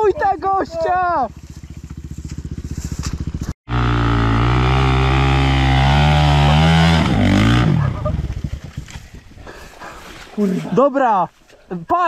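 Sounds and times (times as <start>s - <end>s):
dirt bike engine revving: 0.0s - 9.0s.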